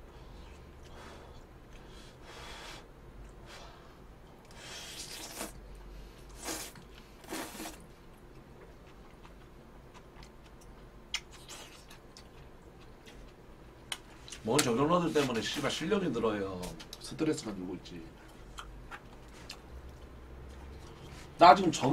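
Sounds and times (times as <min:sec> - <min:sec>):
person chewing: 0:04.4 - 0:05.6, 0:06.3 - 0:14.4, 0:18.3 - 0:21.2
person slurping noodles: 0:04.7 - 0:05.6, 0:06.4 - 0:07.8.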